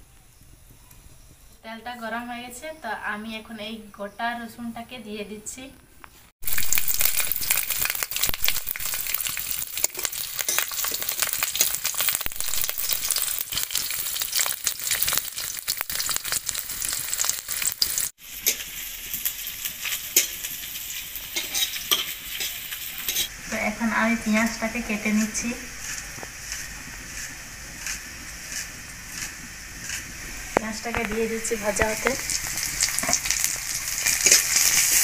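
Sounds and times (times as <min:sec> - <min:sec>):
garlic sizzling in hot oil: 0:06.4 - 0:35.0.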